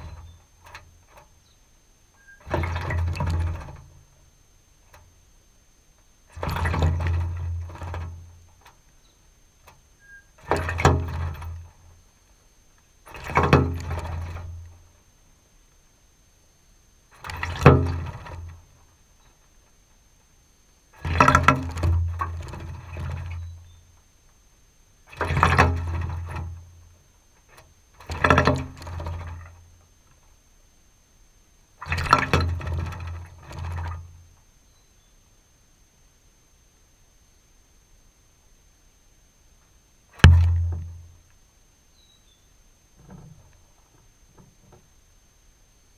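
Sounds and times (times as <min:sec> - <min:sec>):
bird wing-fluttering splashing: 0:02.2 - 0:04.0, 0:17.1 - 0:18.8.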